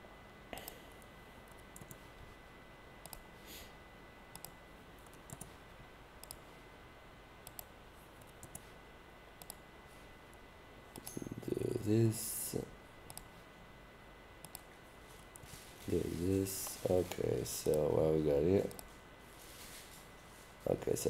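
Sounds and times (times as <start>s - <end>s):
faint high whine: 0.0s - 21.0s
computer mouse clicks: 1.5s - 2.0s, 3.0s - 3.2s, 4.3s - 5.5s, 6.2s - 6.4s, 7.4s - 8.7s, 9.4s - 9.6s, 10.9s - 11.2s, 13.1s - 13.3s, 14.4s - 14.7s.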